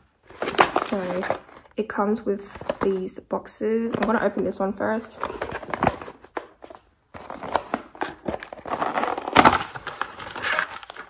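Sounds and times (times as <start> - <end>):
paper packaging rustling: 0.1 - 1.7, 5.0 - 11.0.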